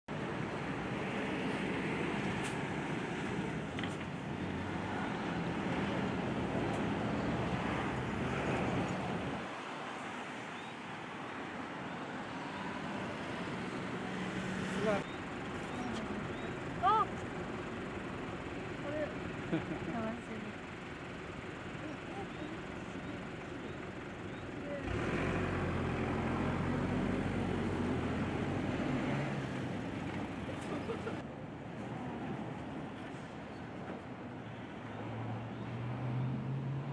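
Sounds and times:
distant road traffic rumble: 0:00.1 - 0:36.9
vehicle engine hum: 0:11.2 - 0:33.5.

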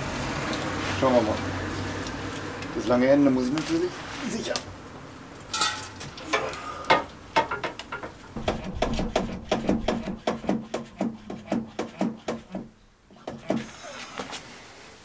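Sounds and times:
knocks and rustles: 0:06.9 - 0:13.7.

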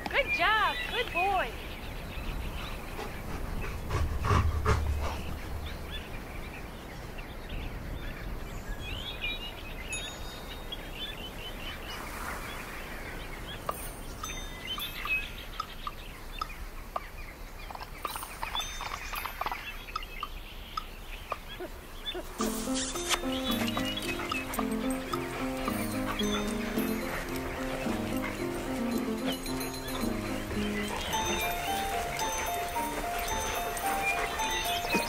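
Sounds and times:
outdoor background hiss: 0:00.0 - 0:35.0
small birds chirping: 0:00.0 - 0:35.0.

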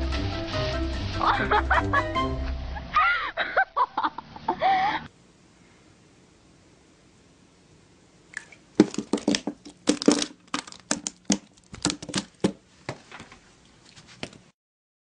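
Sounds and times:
sharp knocks and crinkling rustles: 0:08.8 - 0:14.5.

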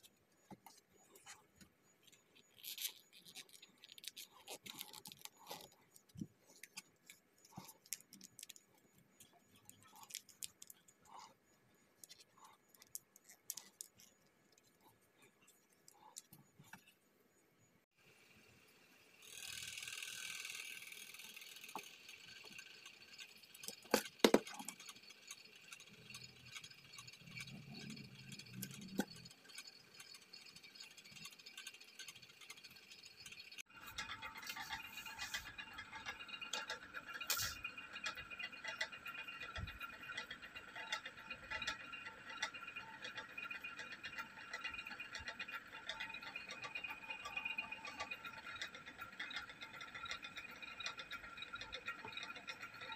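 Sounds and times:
light rattling and ticking: 0:19.2 - 0:52.9.

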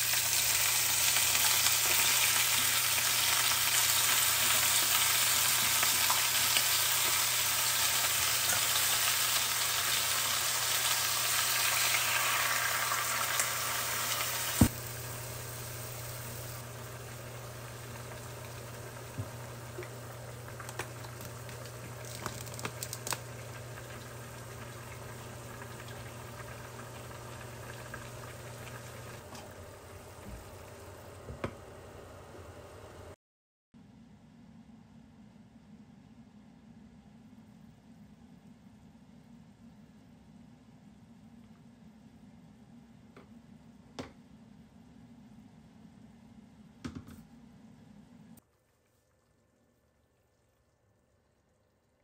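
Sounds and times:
meat and potatoes sizzling in saucepan: 0:00.0 - 0:30.8.

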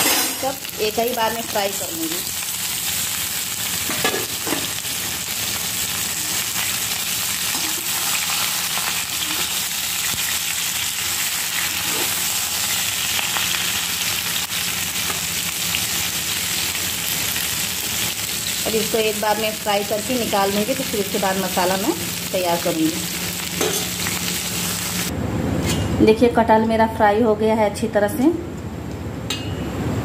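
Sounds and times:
metal spatula scraping: 0:00.0 - 0:00.5
food sizzling in hot oil: 0:00.0 - 0:25.1.

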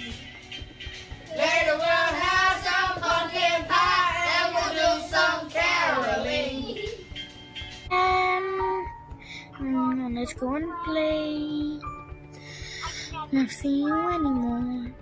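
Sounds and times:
children singing: 0:01.3 - 0:07.0.

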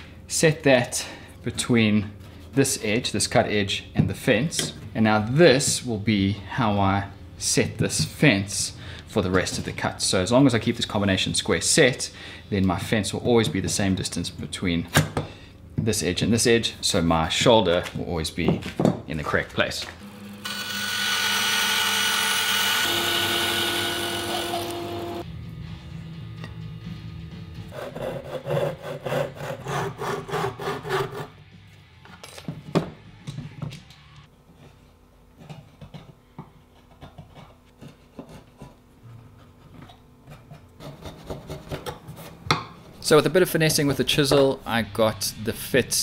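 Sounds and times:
bandsaw running hum: 0:20.0 - 0:25.3
bandsaw cutting wood: 0:20.1 - 0:25.2.

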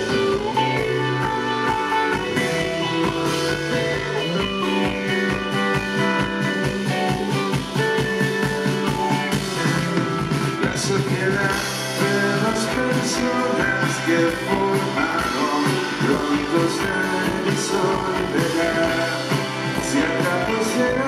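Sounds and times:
live rock band playing: 0:00.0 - 0:21.0.

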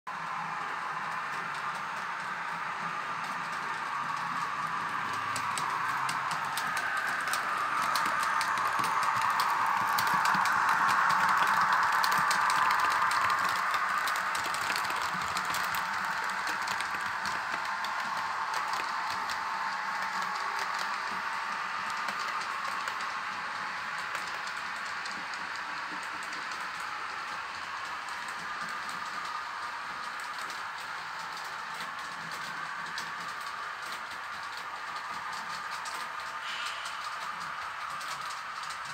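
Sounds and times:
model train whirring on track: 0:00.1 - 0:38.9
wheels clicking over rail joints: 0:03.2 - 0:19.4.

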